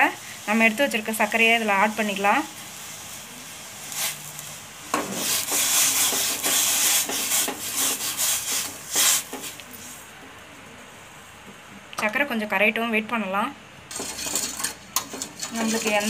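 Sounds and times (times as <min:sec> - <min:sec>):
sugar scraping pan bottom: 0:03.9 - 0:09.6, 0:13.9 - 0:16.0.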